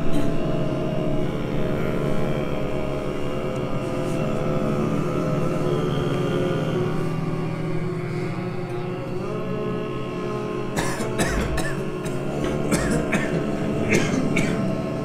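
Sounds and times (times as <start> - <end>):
rough throat bursts: 10.8 - 14.7.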